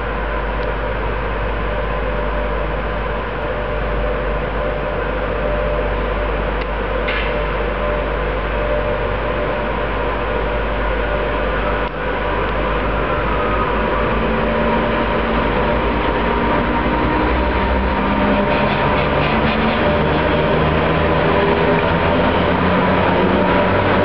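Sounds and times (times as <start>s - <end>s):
faint motor whine: 0.0s - 18.4s
electric locomotives humming: 0.0s - 24.0s.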